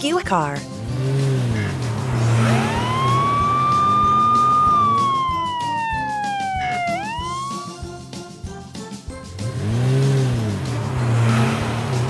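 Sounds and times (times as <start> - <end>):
police siren wailing: 2.0 - 7.9.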